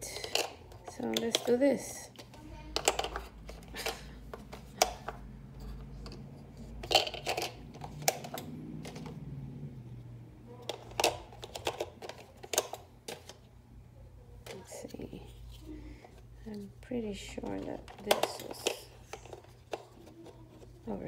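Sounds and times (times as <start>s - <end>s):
plastic pans clicking on metal tin: 0.0s - 5.2s, 6.8s - 9.1s, 10.6s - 13.4s, 17.4s - 20.6s.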